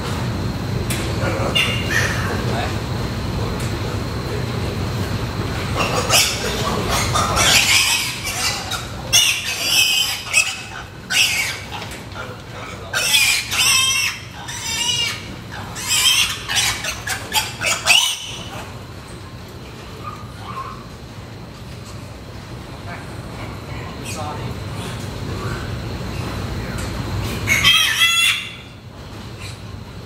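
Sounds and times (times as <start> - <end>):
piglets squealing: 1.3 - 2.8, 5.6 - 12.0, 12.6 - 18.7, 27.3 - 28.8.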